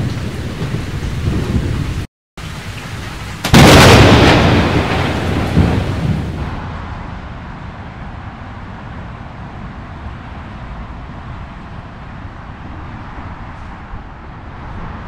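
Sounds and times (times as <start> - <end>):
wind on microphone: 0.0 - 2.1
highway traffic rumble: 0.0 - 15.0.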